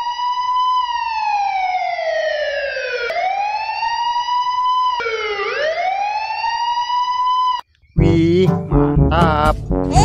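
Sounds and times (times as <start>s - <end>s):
police siren wailing: 0.0s - 7.7s.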